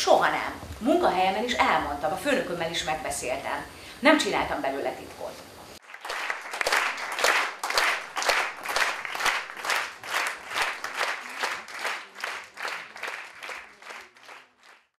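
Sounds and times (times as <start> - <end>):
audience clapping in unison: 5.8 - 15.0.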